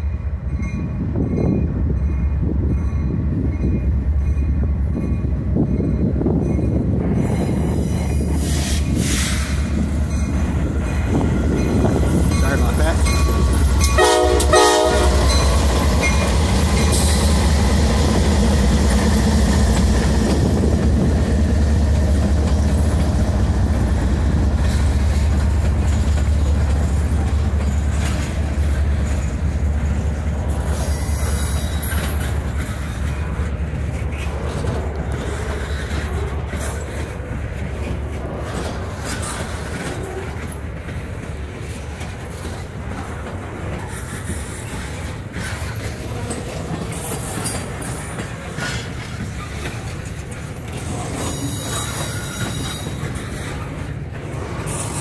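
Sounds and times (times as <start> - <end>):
diesel locomotives passing: 0.0 - 55.0
train horn blast: 13.9 - 15.6.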